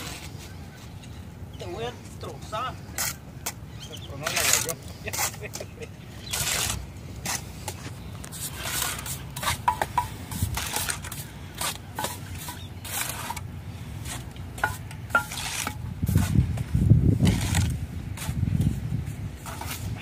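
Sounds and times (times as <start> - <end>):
trowel scraping mortar: 2.8 - 18.8, 19.4 - 20.0.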